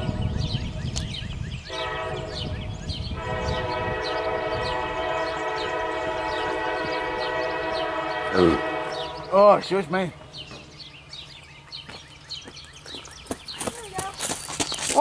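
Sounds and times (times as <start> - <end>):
locomotive air horn: 1.7 - 9.9.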